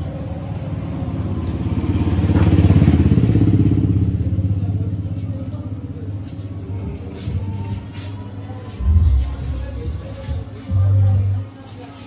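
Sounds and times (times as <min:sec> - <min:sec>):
deep fast-pulsing bass: 0:08.8 - 0:11.5.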